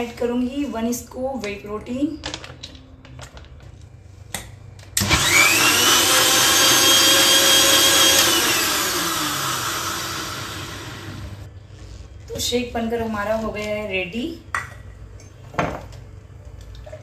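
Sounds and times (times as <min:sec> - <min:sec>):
blender motor whining: 0:05.0 - 0:11.5.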